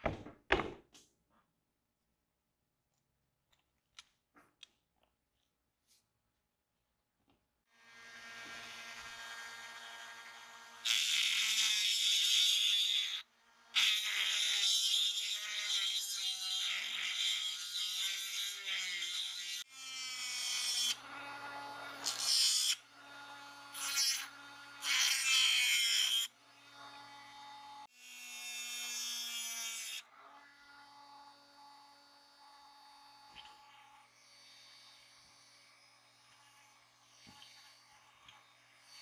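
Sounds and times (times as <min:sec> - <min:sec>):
rotary tool motor whine: 0:30.4 - 0:39.0.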